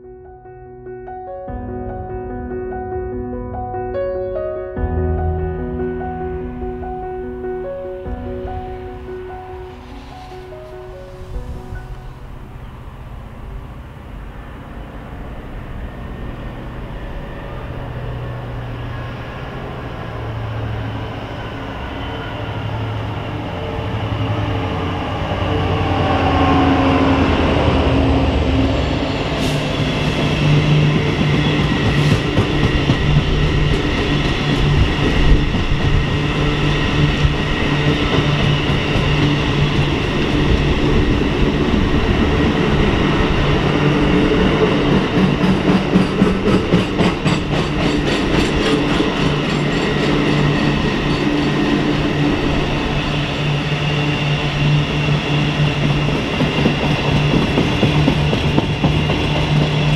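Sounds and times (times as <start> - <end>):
diesel locomotive passing: 5.0 - 59.9
train wagons rumbling by: 7.7 - 59.9.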